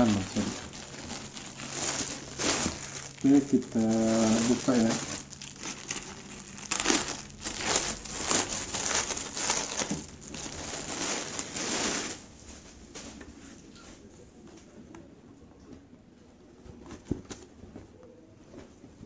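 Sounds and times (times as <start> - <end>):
plastic bag crinkling: 0.0 - 12.5.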